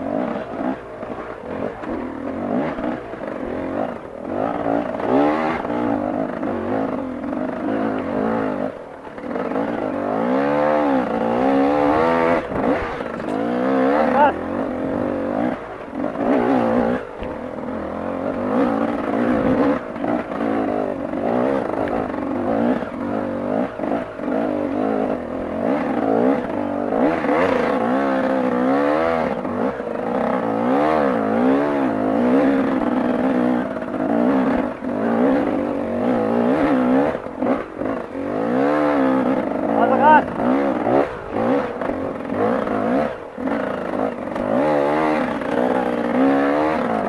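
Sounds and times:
dirt bike engine revving: 0:00.0 - 0:47.0.

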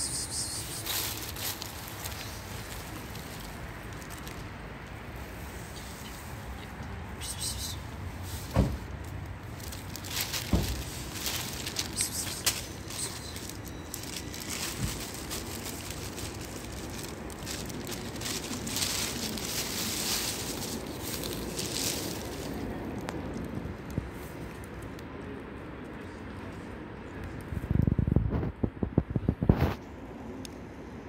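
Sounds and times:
food bag rustling: 0:09.2 - 0:22.7
handling knocks: 0:10.2 - 0:11.5.

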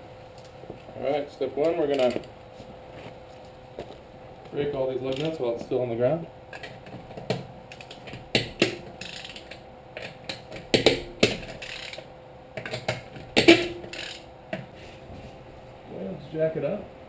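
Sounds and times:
lug wrench clicking and clanking: 0:07.7 - 0:14.3.

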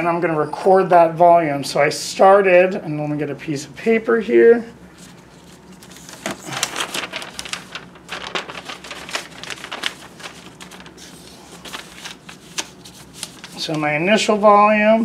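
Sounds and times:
paper rustling and clicking: 0:05.0 - 0:13.9.

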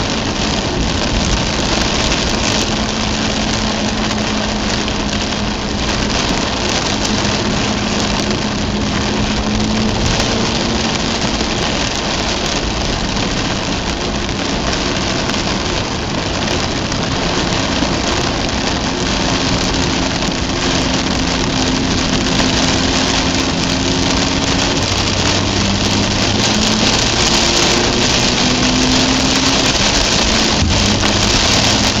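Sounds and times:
car engine humming: 0:00.0 - 0:32.0
heavy rain drumming on car: 0:00.0 - 0:32.0
tyre hiss on wet road: 0:00.0 - 0:32.0.

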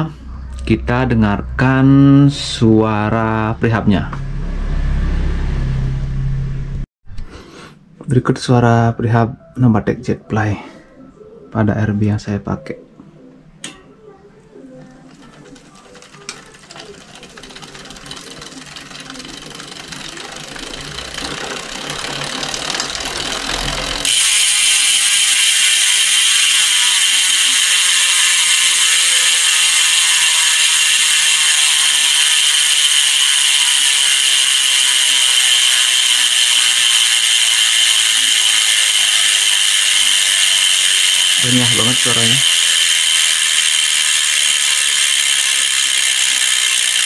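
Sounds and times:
freehub pawls ratcheting: 0:14.9 - 0:47.0.

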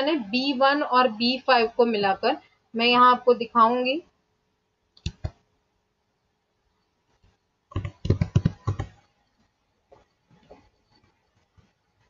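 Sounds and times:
computer keyboard typing: 0:07.7 - 0:09.0.

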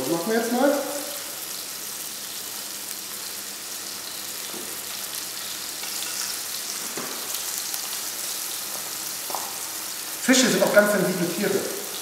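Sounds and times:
fish sizzling in frying pan: 0:00.0 - 0:12.0.

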